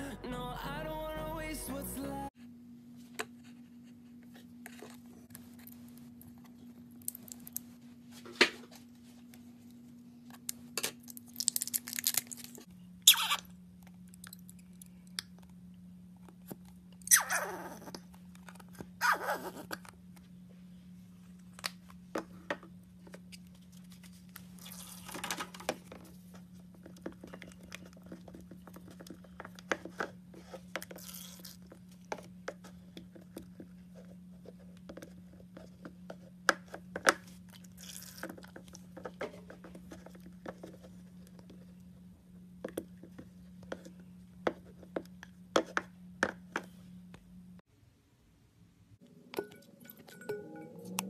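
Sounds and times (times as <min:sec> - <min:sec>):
low hum: 0:00.0 - 0:02.8, 0:48.2 - 0:51.0
spatula stirring sticky slime: 0:26.0 - 0:41.9.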